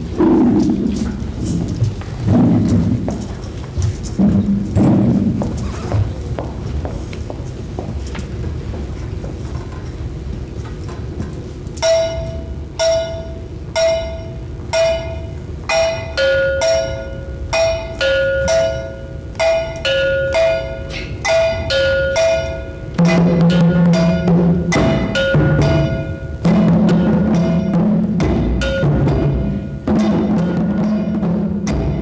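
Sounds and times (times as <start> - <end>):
two-tone bell struck: 11.8 - 32.0.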